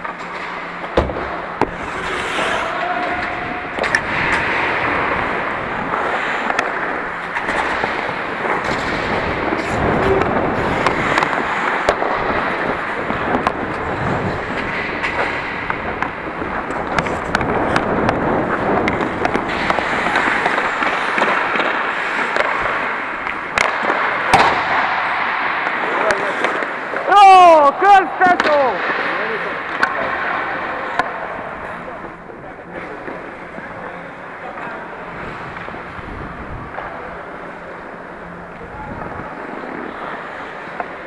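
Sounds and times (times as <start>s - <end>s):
hockey sticks and puck clacking: 0.0s - 41.0s
skate blades scraping ice: 1.4s - 27.2s.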